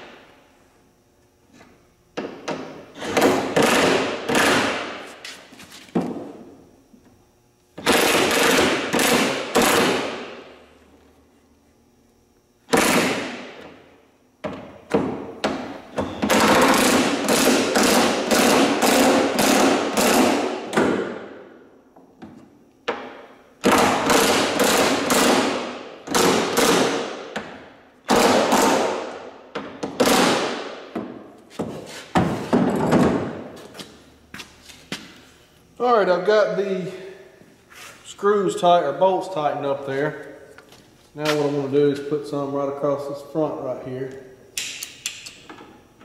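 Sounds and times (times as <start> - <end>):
impact driver hammering: 2.2 - 5.1, 7.8 - 10.5, 12.7 - 13.7, 14.4 - 21.3, 22.9 - 31.2.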